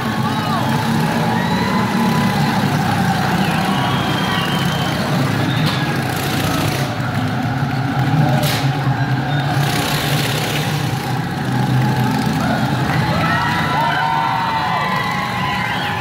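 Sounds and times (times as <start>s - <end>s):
motorcycle engine running: 0.0s - 13.8s.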